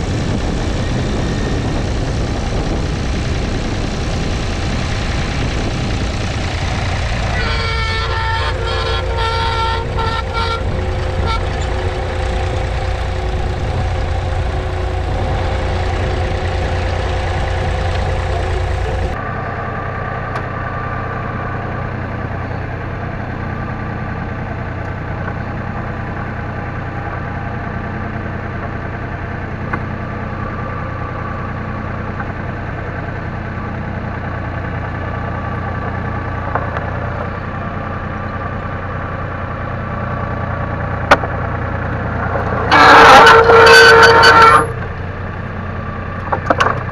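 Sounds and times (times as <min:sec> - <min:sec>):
diesel tractor engine under load: 0:00.0 - 0:46.9.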